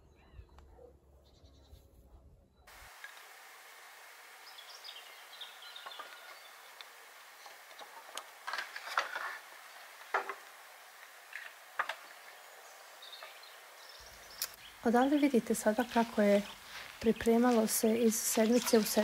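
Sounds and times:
birds twittering faintly: 0:00.0 - 0:19.0
outdoor hiss: 0:02.7 - 0:19.0
sharp clicks and rustles: 0:05.9 - 0:12.4.

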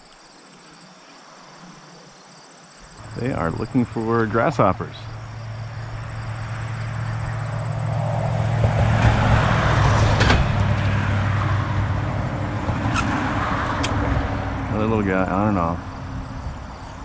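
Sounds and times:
road vehicle passing: 0:02.8 - 0:17.0.

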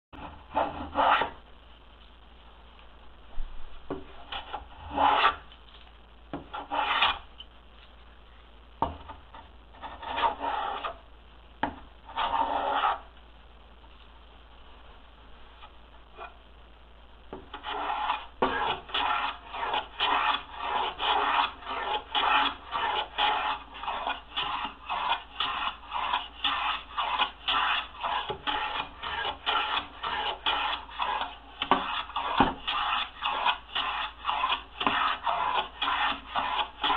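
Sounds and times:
hand plane shaving wood: 0:17.6 - 0:36.9.

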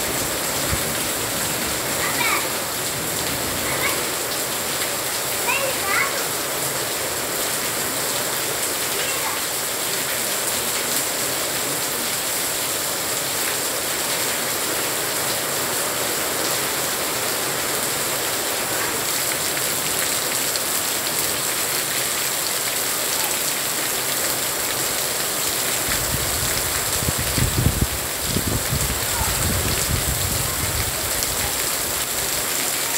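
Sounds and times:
rain downpour: 0:00.0 - 0:32.9.

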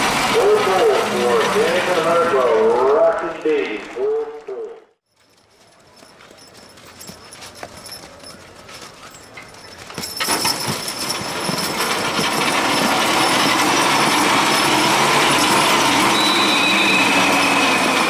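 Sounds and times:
loud grinding rush of load: 0:00.0 - 0:03.2, 0:10.8 - 0:18.0.

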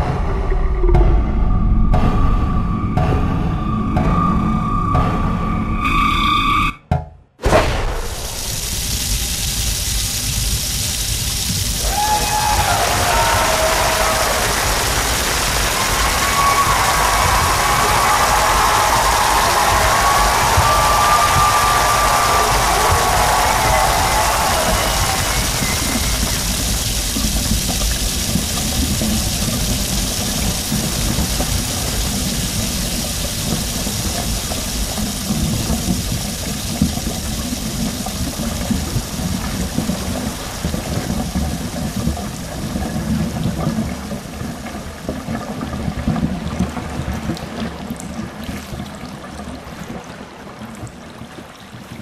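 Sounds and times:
water pouring over an edge: 0:08.0 - 0:52.0.

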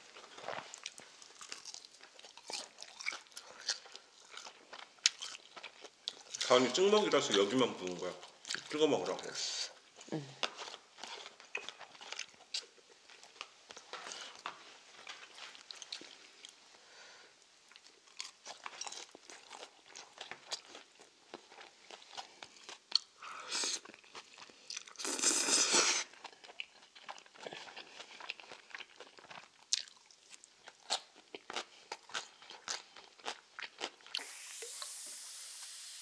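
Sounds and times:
crunching and chewing food: 0:00.0 - 0:34.3
slurping noodles: 0:25.0 - 0:26.2
fizzing hiss: 0:34.2 - 0:36.0.

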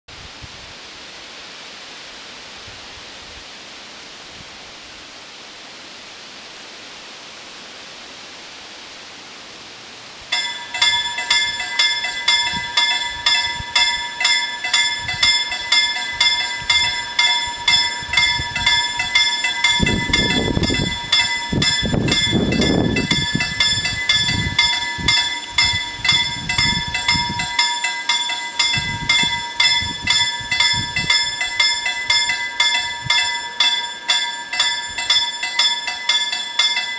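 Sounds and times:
wind hissing: 0:10.1 - 0:36.8
level crossing warning bells: 0:10.3 - 0:36.9.

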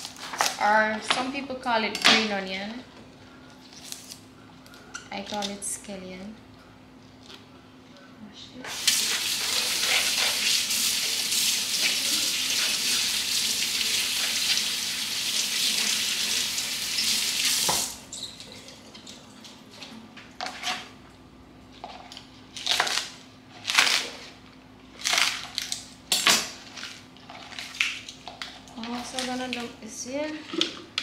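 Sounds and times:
tap running into sink: 0:17.4 - 0:17.9.

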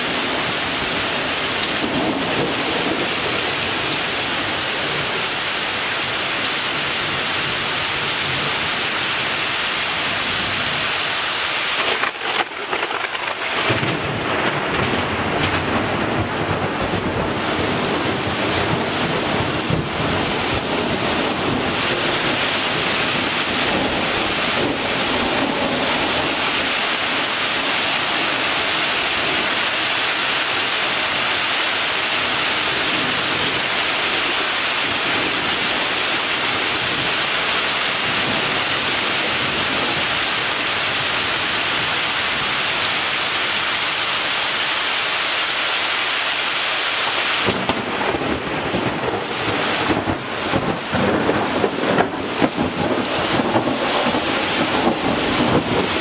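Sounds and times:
thunder rumbling: 0:00.0 - 0:05.2, 0:11.8 - 0:29.6, 0:47.4 - 0:56.0
heavy rain pouring: 0:00.0 - 0:56.0.

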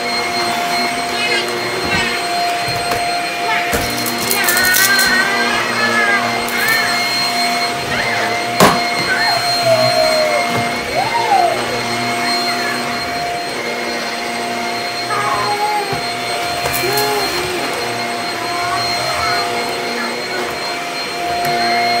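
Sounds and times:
vacuum cleaner motor running: 0:00.0 - 0:22.0.

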